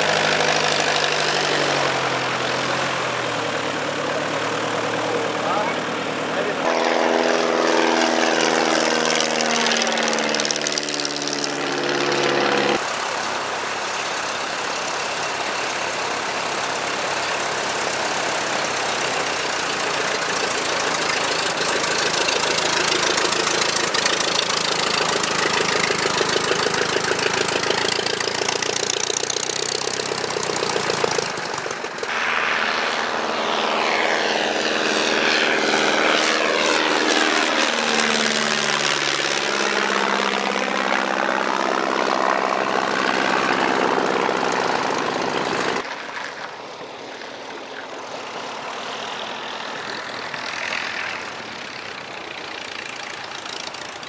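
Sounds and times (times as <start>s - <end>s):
propeller engine running on ground: 0.0s - 54.0s
propeller plane flying past: 0.0s - 54.0s.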